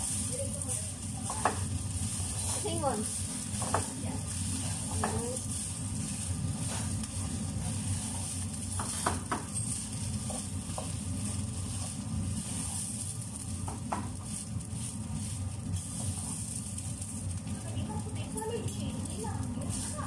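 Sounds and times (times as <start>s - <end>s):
spatula scraping a pot: 0.0s - 13.3s, 14.0s - 16.6s
rice sizzling in a pot: 0.0s - 20.0s.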